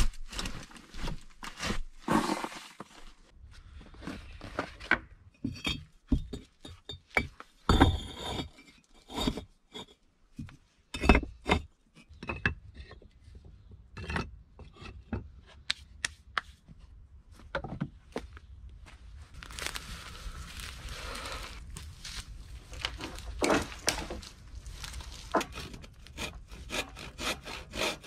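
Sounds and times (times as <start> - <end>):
bricks scraping on earth floor: 0.0 - 13.1, 19.3 - 28.0.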